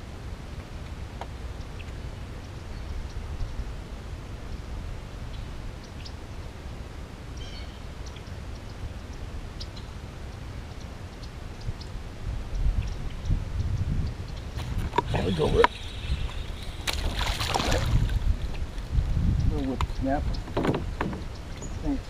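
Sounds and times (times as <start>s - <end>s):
wind rumble on microphone: 0.0s - 22.0s
faint bird chirps: 7.4s - 8.8s, 15.1s - 17.0s.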